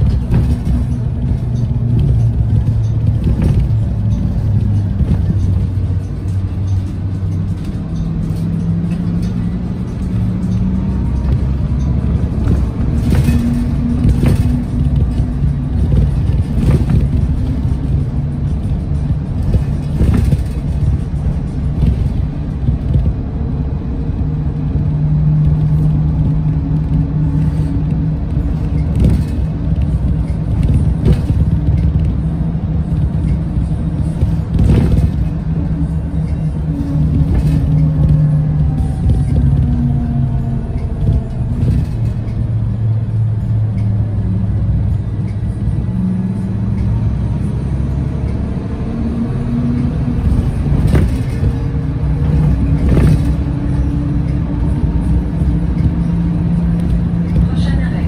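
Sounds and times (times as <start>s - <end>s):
bus engine rumble: 0.0s - 58.0s.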